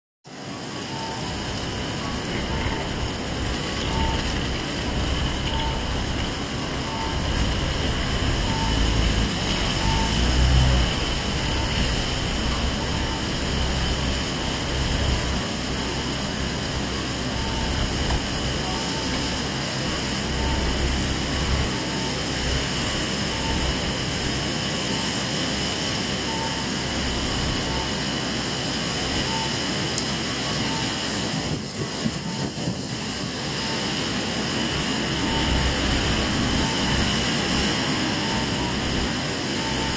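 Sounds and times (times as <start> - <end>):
rain hissing: 0.3 - 39.9
traffic on wet road: 0.3 - 39.9
faint short beeps: 0.9 - 1.4.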